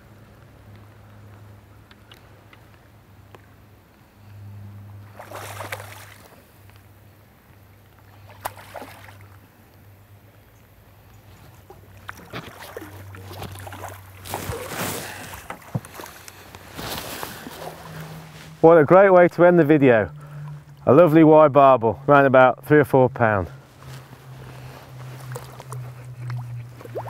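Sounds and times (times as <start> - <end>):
steady low hum: 0.0 - 27.0
fish splashing in water: 5.0 - 6.6, 8.0 - 9.5, 11.6 - 16.7, 24.5 - 27.0.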